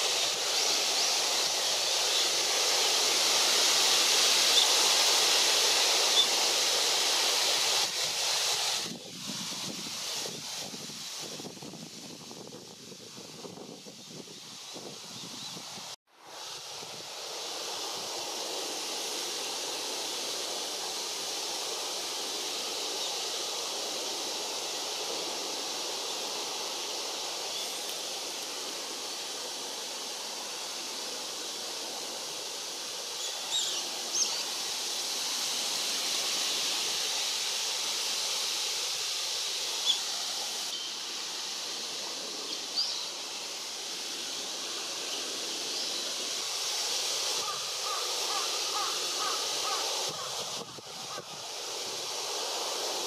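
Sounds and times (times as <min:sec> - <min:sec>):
wind through tree branches: 0:00.0 - 0:53.0
high bird calls: 0:47.4 - 0:50.3.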